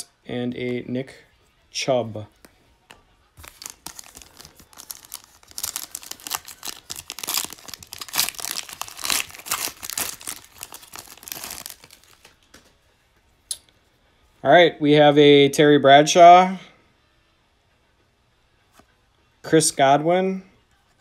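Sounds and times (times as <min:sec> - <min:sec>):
foil wrapper tearing and crinkling: 0:03.4 - 0:12.4.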